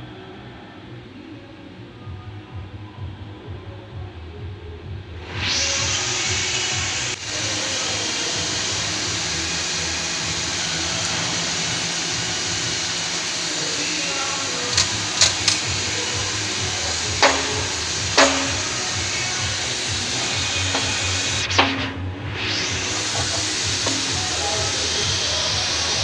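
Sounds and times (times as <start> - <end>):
steady workshop hiss: 5.2 - 26.0.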